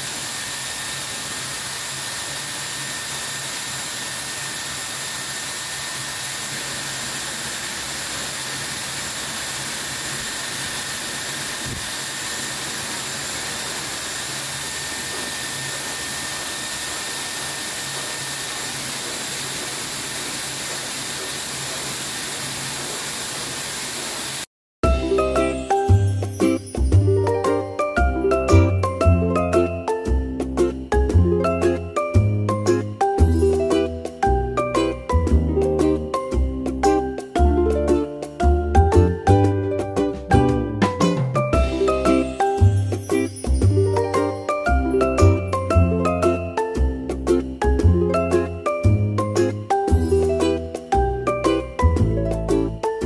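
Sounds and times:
blow dryer running: 0.0 - 26.1.

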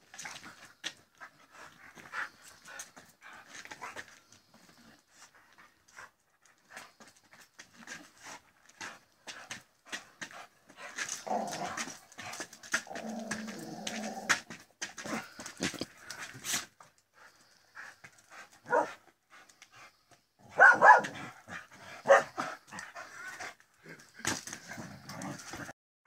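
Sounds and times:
dogs barking in play: 18.6 - 19.0, 20.4 - 23.4.

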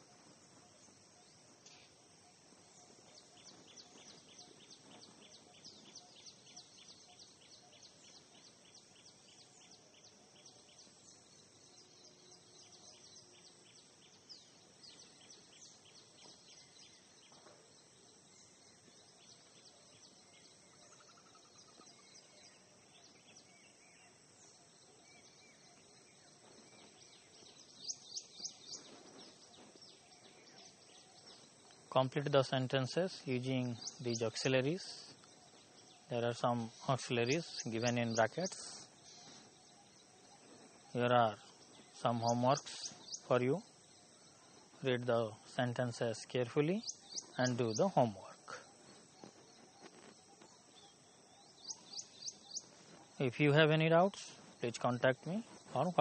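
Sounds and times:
faint background hiss: 0.0 - 56.0.

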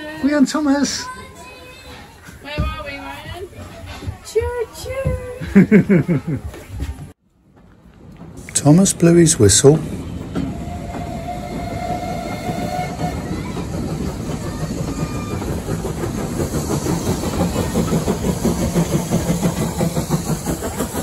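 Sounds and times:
train rumble: 0.0 - 21.0
train wheels knocking on rails: 10.2 - 21.0
steam locomotive whistle: 10.4 - 13.6.

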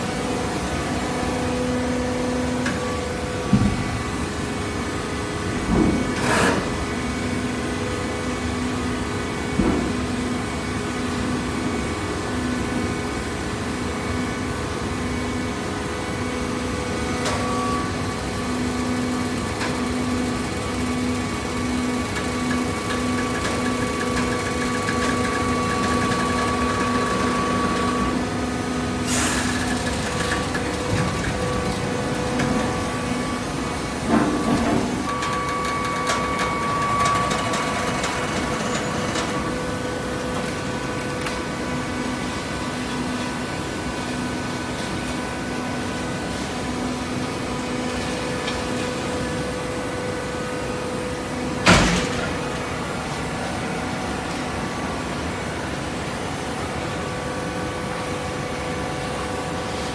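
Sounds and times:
baler machine hum: 17.3 - 44.0
machine clunk: 51.6 - 52.8.

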